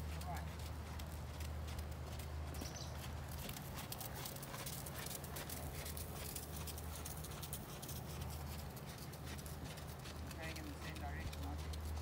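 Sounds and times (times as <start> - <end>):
horse hoofbeats: 0.0 - 12.0.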